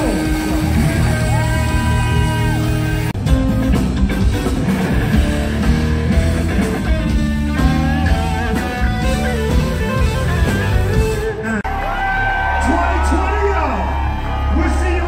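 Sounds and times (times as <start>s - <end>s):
electric guitar: 0.0s - 12.5s
funk band playing: 0.0s - 12.6s.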